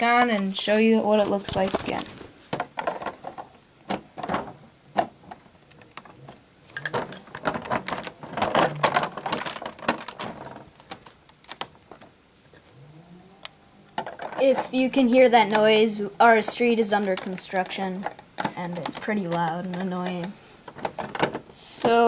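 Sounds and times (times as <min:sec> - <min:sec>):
plastic bricks clicking and clattering: 0:01.4 - 0:12.1, 0:13.9 - 0:14.9, 0:16.4 - 0:22.0.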